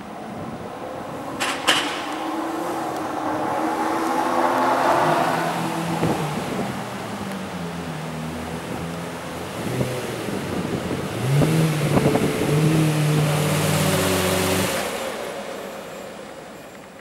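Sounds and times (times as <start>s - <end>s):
sports car engine revving: 0.1s - 16.3s
exhaust cracks: 0.4s - 13.8s.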